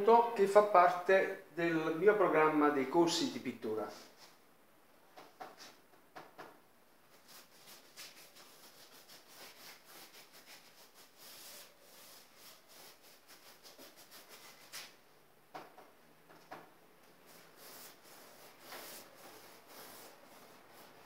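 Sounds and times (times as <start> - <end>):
paintbrush scrubbing on canvas: 7.1 - 15.0, 17.3 - 21.0.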